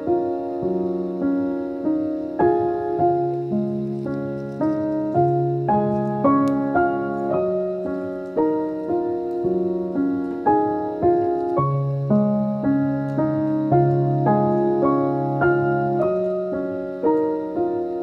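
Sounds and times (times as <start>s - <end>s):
slow piano melody: 0.0s - 18.0s.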